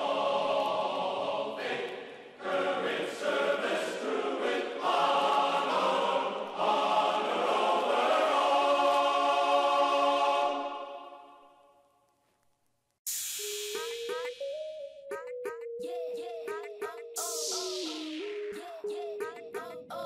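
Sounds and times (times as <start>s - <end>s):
choir singing: 0.0s - 11.6s.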